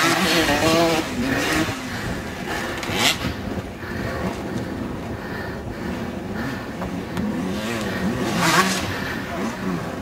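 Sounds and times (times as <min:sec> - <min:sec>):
distant dirt bike engines: 0:00.0 - 0:10.0
wind noise on microphone: 0:00.0 - 0:10.0.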